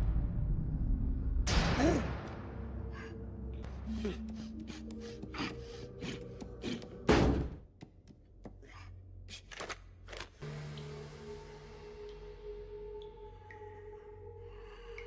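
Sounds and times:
faint sustained music tone: 10.4 - 15.0.

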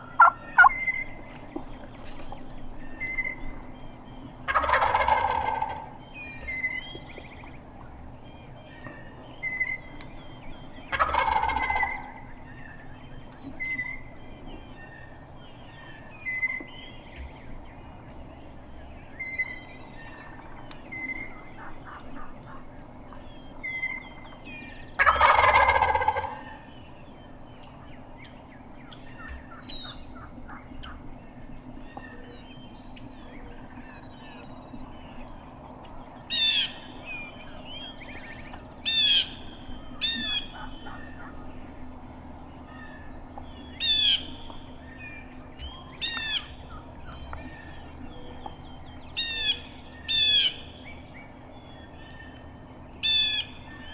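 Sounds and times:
turkey gobbling: 0.0 - 3.6, 4.4 - 6.8, 10.9 - 12.8, 19.4 - 22.6, 24.9 - 26.7, 28.8 - 31.0, 37.8 - 41.9, 42.7 - 45.0
high downward-slurred bird calls: 0.0 - 53.9.

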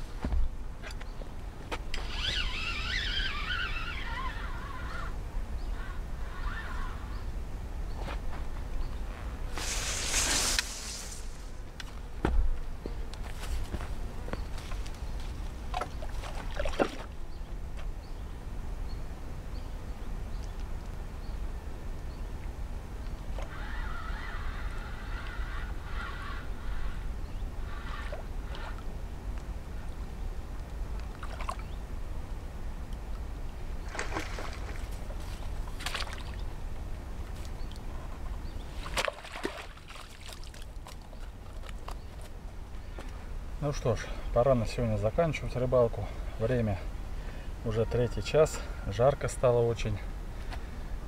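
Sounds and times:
fishing rod clicks and rustles: 1.8 - 4.1, 37.2 - 42.4
fish splashing at the surface: 33.8 - 35.0, 38.8 - 40.7.

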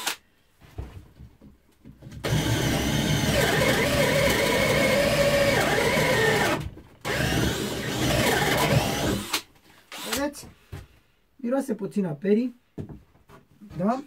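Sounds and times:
cordless drill motor whining: 2.2 - 10.3.

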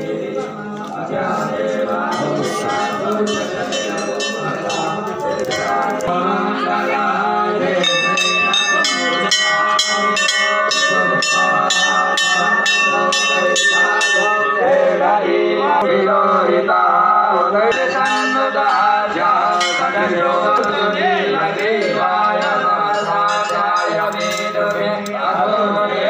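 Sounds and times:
voices chanting: 0.0 - 26.0
temple bell ringing: 2.0 - 6.2, 7.8 - 15.8, 17.6 - 25.0.

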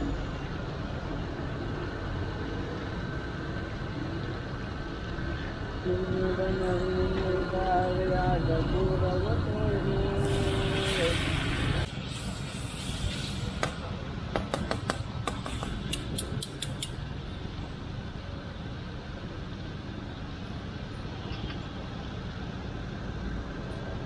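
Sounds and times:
steady low rumble: 0.0 - 14.4.

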